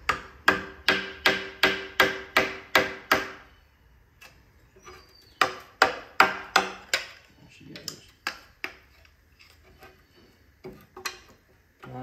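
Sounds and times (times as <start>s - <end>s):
hammer striking a chisel: 0.0s - 3.4s, 5.4s - 7.2s.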